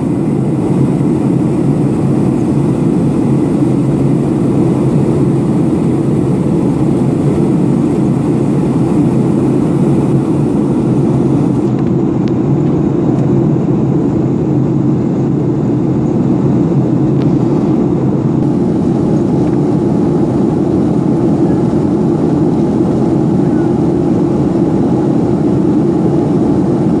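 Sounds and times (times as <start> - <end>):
airliner cabin engine noise: 0.0 - 27.0.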